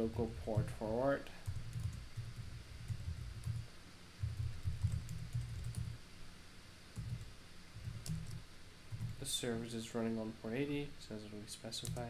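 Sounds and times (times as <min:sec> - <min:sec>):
typing on a keyboard: 0:01.4 - 0:03.6, 0:04.2 - 0:06.0, 0:07.0 - 0:09.2, 0:11.8 - 0:12.0.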